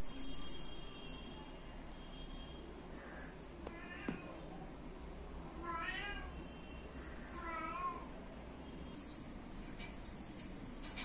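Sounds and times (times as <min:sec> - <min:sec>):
cat meowing: 0:05.6 - 0:06.4.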